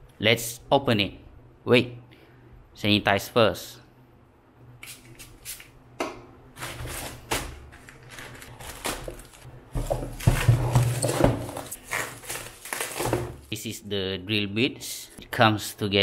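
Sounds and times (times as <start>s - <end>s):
plastic mailer bag tearing: 6.6s - 9.5s, 10.1s - 13.5s
plastic crinkling and rustling: 6.6s - 13.5s.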